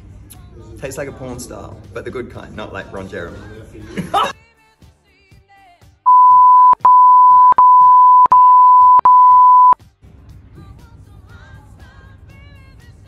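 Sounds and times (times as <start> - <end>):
high-pitched censor beep: 6.1 - 9.8.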